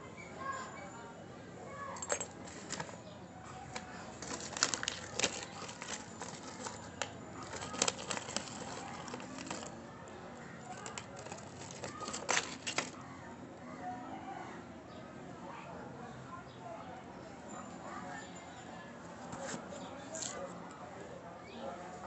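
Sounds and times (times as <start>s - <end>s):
plastic packet crinkling: 2.0s - 3.0s, 3.6s - 9.8s, 10.7s - 13.0s.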